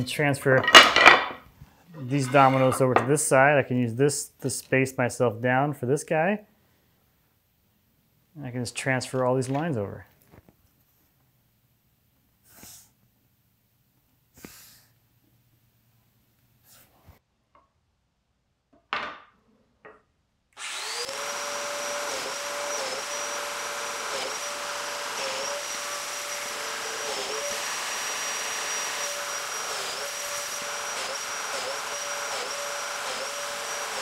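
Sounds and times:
power tool high whine: 20.6s - 34.0s.

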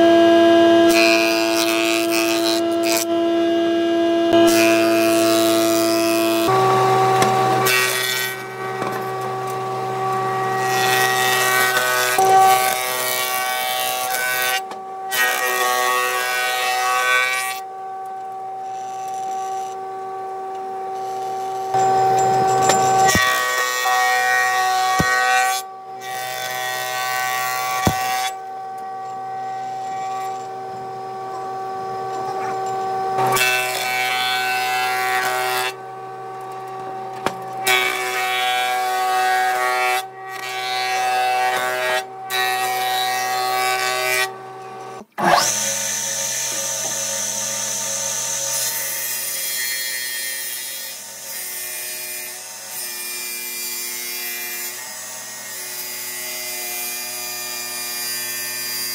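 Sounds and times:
thickness planer planing wood: 0.0s - 17.6s, 21.3s - 28.4s
table saw cutting wood: 0.0s - 58.9s.

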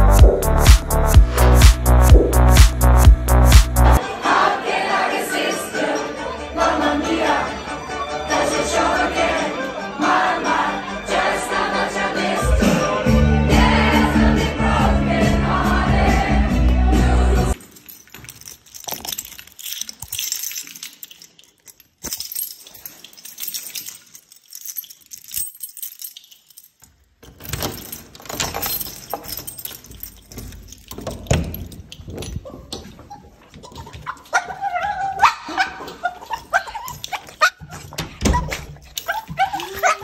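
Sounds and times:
handling clicks and knocks at door: 27.2s - 32.9s
dog whining: 32.4s - 40.0s.

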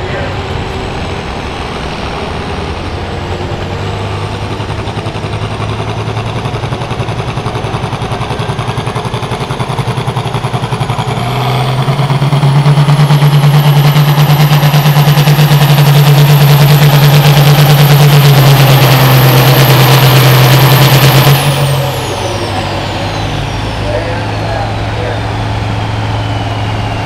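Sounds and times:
tractor diesel engine under load: 0.0s - 27.0s
high whine: 7.0s - 27.0s.

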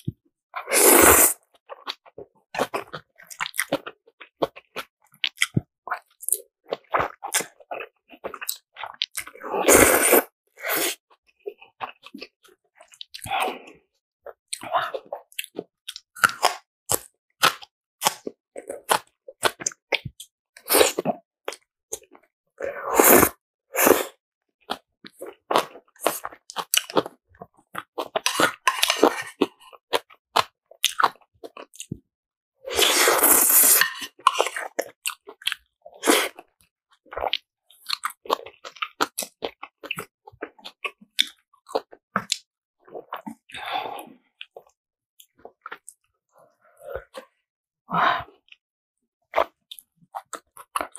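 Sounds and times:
slurping noodles: 0.5s - 2.0s, 5.4s - 11.1s, 20.6s - 21.2s, 22.6s - 27.2s, 28.0s - 30.1s, 32.6s - 35.2s, 35.9s - 36.5s
wet chewing and crunching: 1.4s - 9.4s, 11.2s - 22.3s, 24.6s - 32.0s, 32.8s - 47.4s, 49.3s - 50.9s.

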